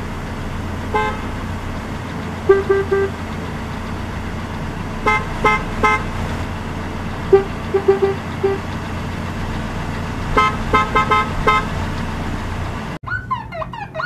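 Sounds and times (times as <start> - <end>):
higher car horn beeps: 0.9 - 1.4, 2.4 - 3.2, 5.0 - 6.2, 7.3 - 8.7, 10.3 - 11.8
lower car horn beeps: 0.9 - 1.5, 2.4 - 3.3, 5.0 - 6.2, 7.3 - 8.8, 10.3 - 11.8.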